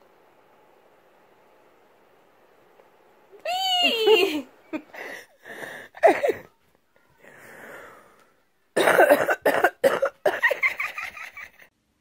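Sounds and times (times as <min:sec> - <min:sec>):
person coughing: 0:06.0 - 0:06.5, 0:08.8 - 0:10.6.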